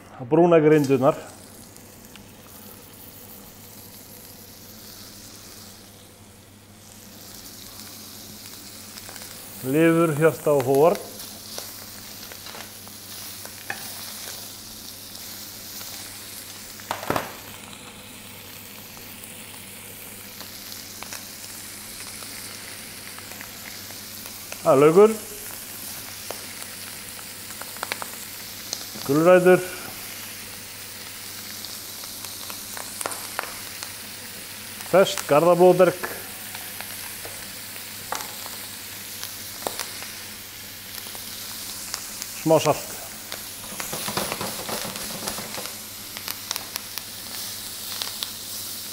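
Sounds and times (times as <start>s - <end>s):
meat sizzling in a frying pan: 0.8s - 48.9s
sharp pops and crackles: 10.5s - 14.4s, 15.7s - 17.8s, 25.4s - 29.2s, 31.0s - 33.9s, 39.2s - 40.2s, 40.9s - 48.4s.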